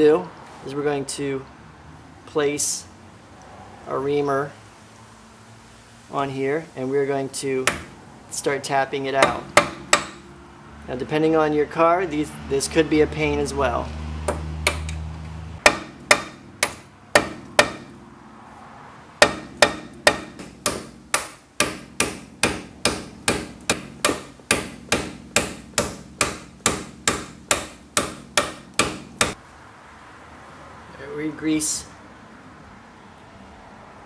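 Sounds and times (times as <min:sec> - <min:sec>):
hammer tapping metal: 0:07.6 - 0:08.0, 0:09.2 - 0:10.3, 0:14.2 - 0:15.0, 0:15.6 - 0:18.0, 0:19.2 - 0:29.4.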